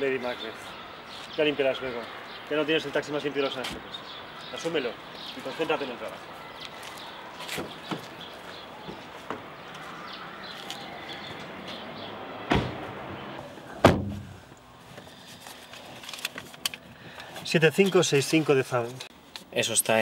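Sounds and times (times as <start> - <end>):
car doors slamming shut: 12.4 - 13.0, 13.8 - 14.4.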